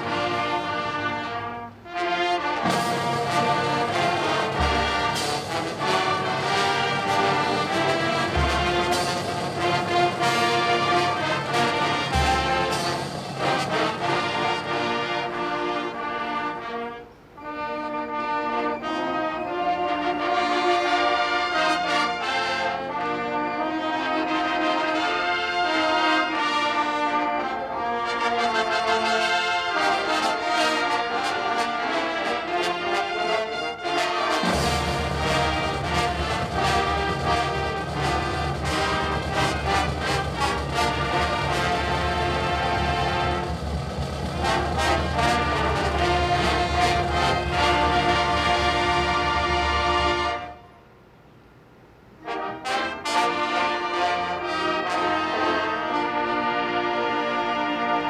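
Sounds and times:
brass band playing slow chords: 0.0s - 51.2s, 52.0s - 58.0s
low drum rumble: 34.5s - 49.1s.

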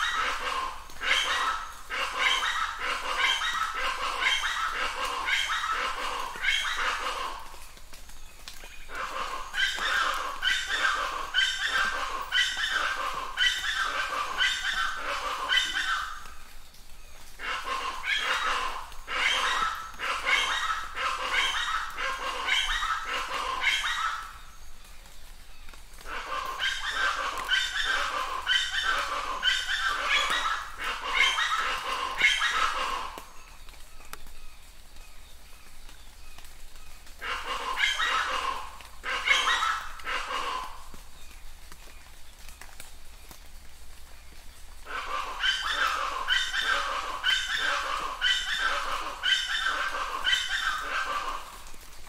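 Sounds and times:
animal calling: 0.0s - 7.6s, 8.6s - 16.3s, 17.4s - 24.5s, 26.0s - 33.4s, 37.1s - 41.0s, 44.8s - 51.8s.

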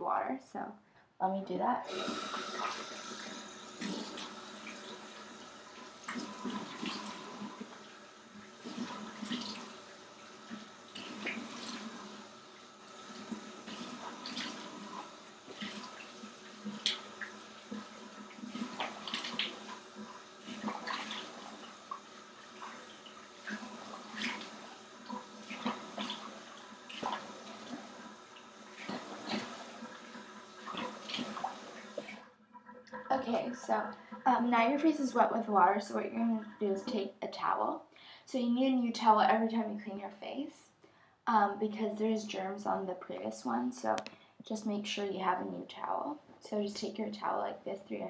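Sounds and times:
water running into sink: 1.9s - 37.2s.

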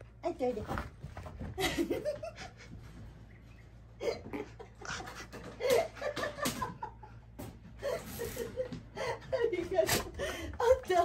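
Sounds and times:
people laughing: 4.0s - 10.1s.

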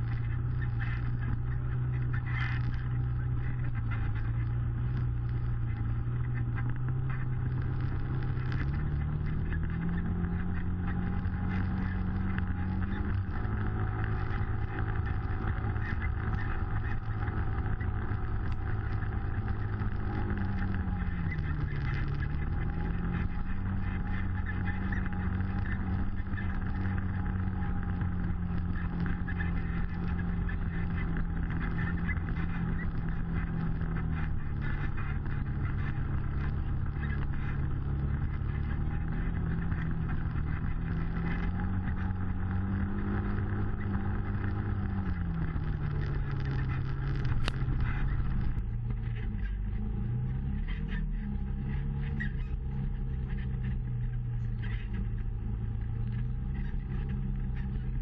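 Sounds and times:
utility vehicle engine running: 0.0s - 58.0s.

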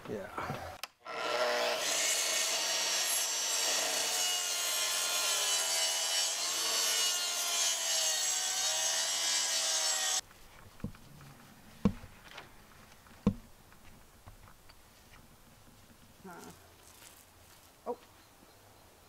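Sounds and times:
circular saw cutting plywood: 1.0s - 10.2s.

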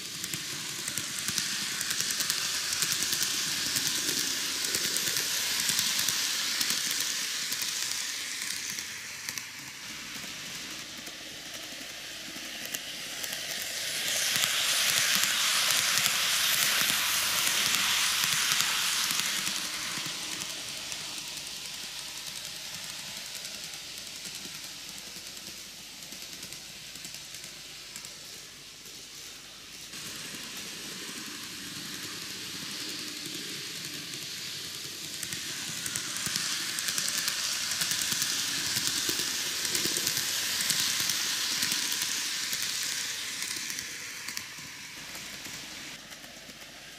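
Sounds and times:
model train running on track: 0.0s - 46.9s.

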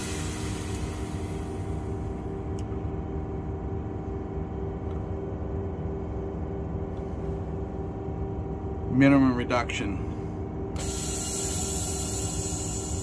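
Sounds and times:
air brakes hissing: 0.0s - 1.9s, 10.8s - 13.0s.

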